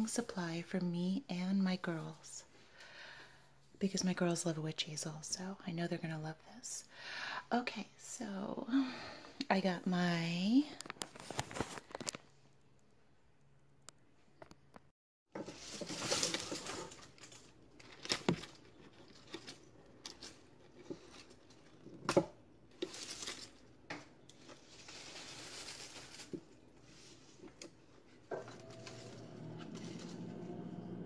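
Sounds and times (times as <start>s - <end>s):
leaves and petals rustling: 15.4s - 30.3s.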